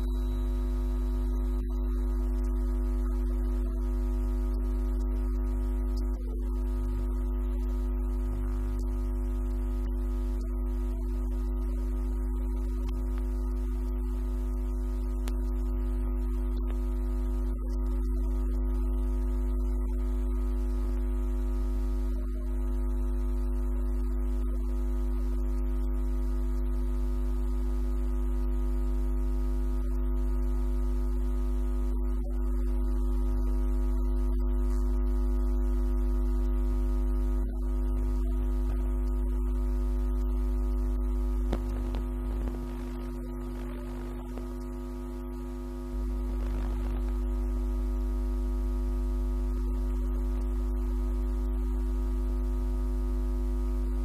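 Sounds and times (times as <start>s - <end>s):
low hum-like drone: 0.0s - 24.8s.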